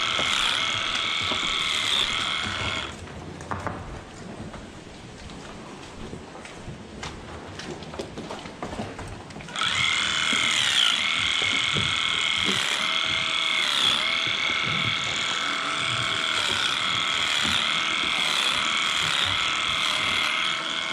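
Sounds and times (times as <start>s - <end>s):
electric clippers humming: 0.0s - 3.0s, 9.5s - 20.9s.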